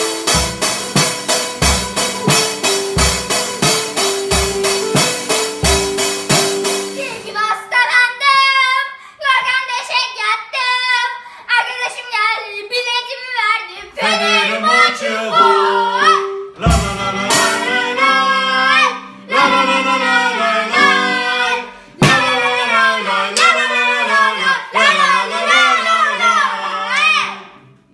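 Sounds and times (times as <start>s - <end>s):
sharp drum hits: 0.0s - 7.3s, 16.5s - 18.1s, 22.0s - 22.6s
band with drums piano ukulele: 0.0s - 7.4s, 15.3s - 23.9s
children singing a chant: 13.8s - 27.6s.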